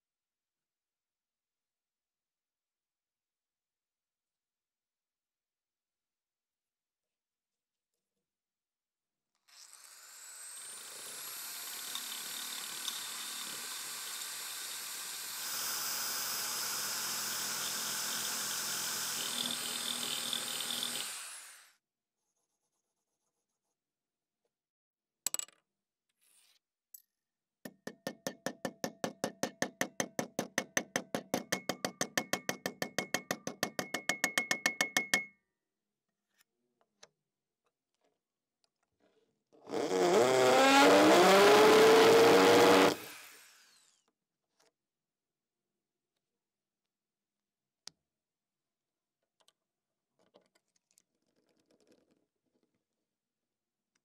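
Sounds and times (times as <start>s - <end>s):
electric drill sanding wood: 9.9s - 21.7s, 39.7s - 43.9s.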